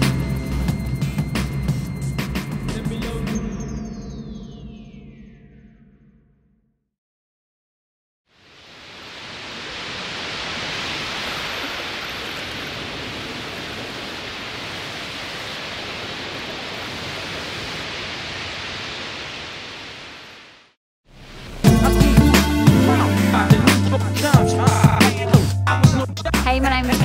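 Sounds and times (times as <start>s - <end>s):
hip-hop music with heavy beat: 0.0s - 3.7s, 21.6s - 27.0s
steady rushing hiss: 8.4s - 21.7s.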